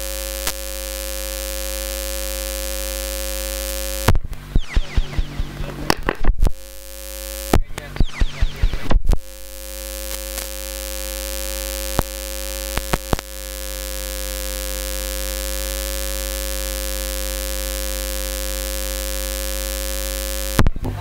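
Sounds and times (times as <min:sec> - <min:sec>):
electrical mains hum and hiss: 0:00.0 - 0:21.0
sharp clicks: 0:10.0 - 0:10.6, 0:11.9 - 0:13.3.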